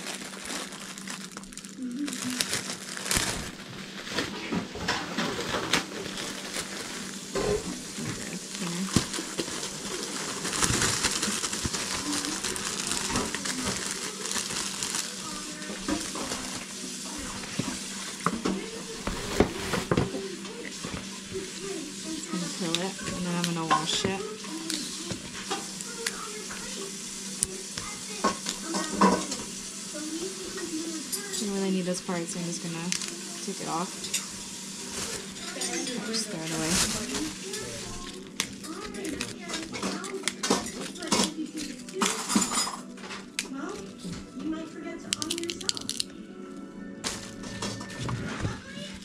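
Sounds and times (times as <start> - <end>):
leaf rustling: 0.0 - 20.0, 32.5 - 40.0
plastic bag crinkling: 0.0 - 46.1, 47.0 - 49.0
leaves snapping off stalk: 45.1 - 46.1.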